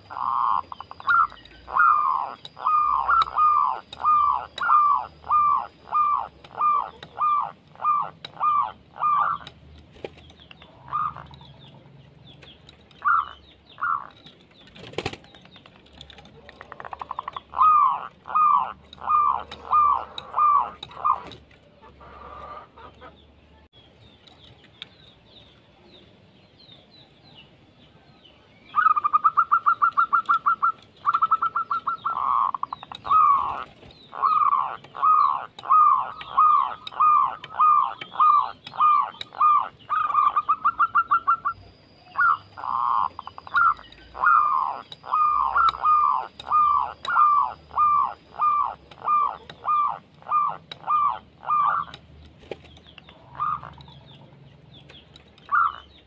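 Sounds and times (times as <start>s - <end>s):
dove cooing: 0.0s - 9.5s, 10.6s - 11.7s, 13.0s - 14.2s, 16.1s - 23.2s, 28.8s - 52.0s, 53.1s - 54.1s, 55.4s - 55.9s
faint bird chirps: 10.4s - 56.0s.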